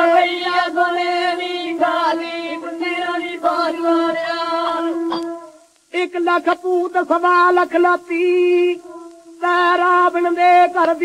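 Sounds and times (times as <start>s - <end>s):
folk song on old record: 0.0s - 11.0s.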